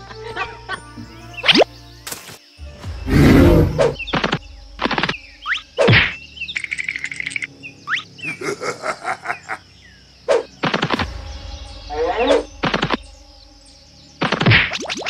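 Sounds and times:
rising whistle-like chirps: 2.6 - 8.2, 10.3 - 15.0.

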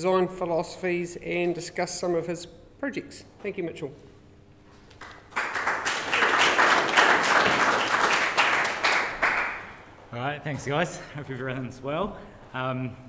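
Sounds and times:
audience applauding: 5.0 - 9.9.

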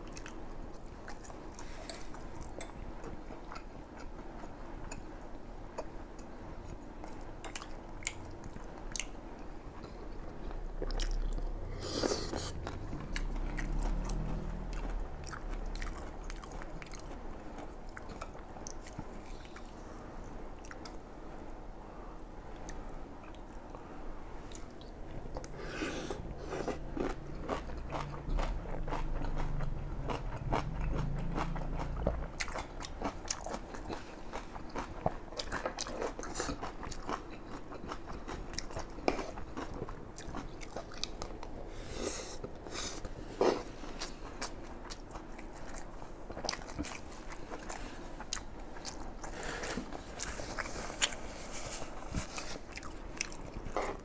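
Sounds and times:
chewing and crunching food: 0.0 - 5.1, 5.7 - 21.1, 22.5 - 54.0
low hum: 24.8 - 33.0.

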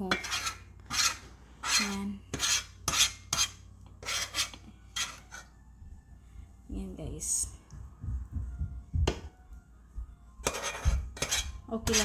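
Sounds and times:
fork scraping metal pan: 0.0 - 5.5, 10.4 - 12.0.

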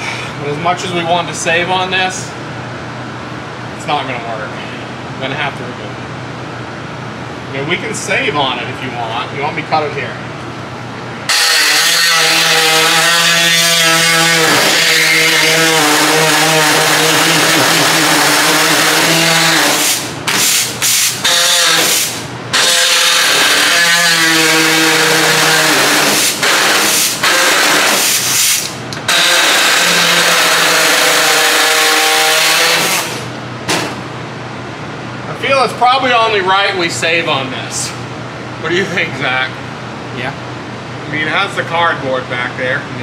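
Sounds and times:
power cutting tool cutting metal: 11.3 - 33.3.

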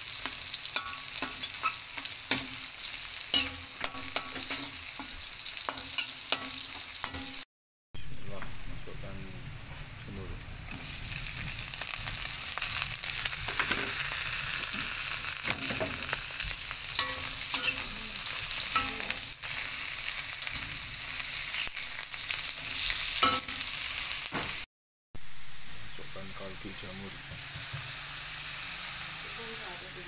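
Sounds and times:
utensil scraping a wok: 0.0 - 7.4, 10.7 - 24.2
mushrooms sizzling in oil: 0.0 - 30.0.

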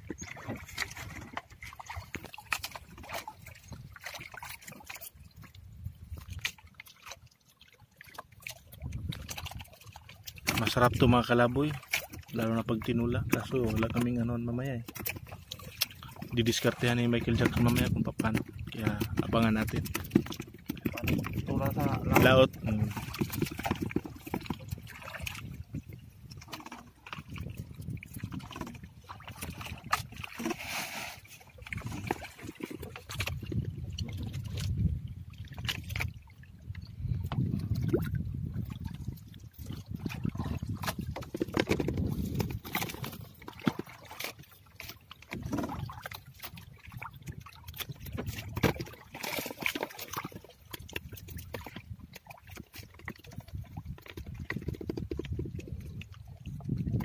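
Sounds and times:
rush of water: 0.0 - 57.0
floats knocking against hull: 14.8 - 30.6, 39.6 - 56.1
net knocking against hull: 17.2 - 25.4, 40.7 - 44.2.

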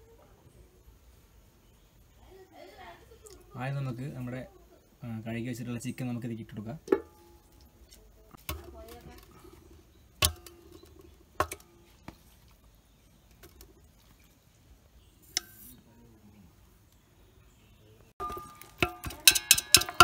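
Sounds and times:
knocks against metal pot: 10.2 - 11.9, 18.2 - 20.0
chicken dropped into metal pot: 18.2 - 20.0.

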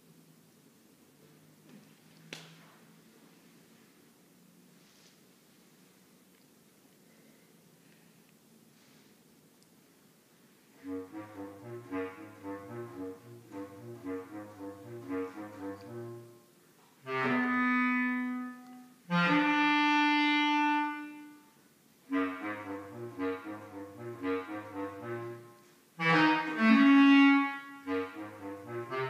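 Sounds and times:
bass clarinet playing: 10.8 - 29.0.

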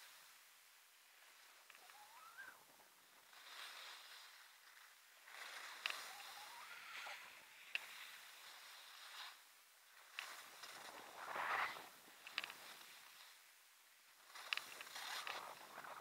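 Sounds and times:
skis swishing on snow: 2.8 - 13.5, 14.1 - 16.0.

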